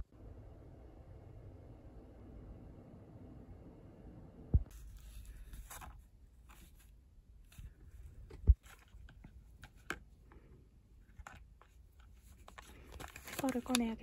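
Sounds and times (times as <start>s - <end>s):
cardboard box and cable rustling: 4.7s - 14.0s.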